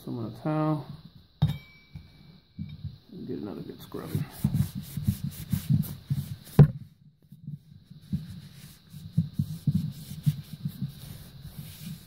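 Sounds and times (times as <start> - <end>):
towel rubbing metal clutch: 8.0 - 12.0.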